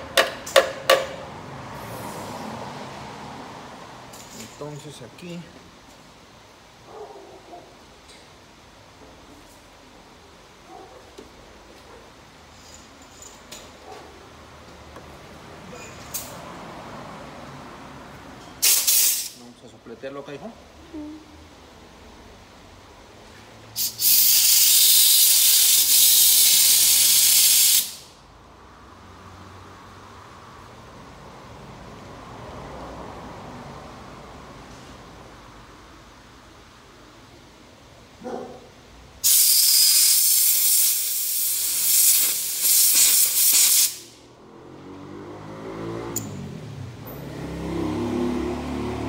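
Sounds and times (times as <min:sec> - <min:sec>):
air blow gun hissing: 0:18.6 - 0:19.4, 0:23.8 - 0:28.2, 0:39.2 - 0:44.2.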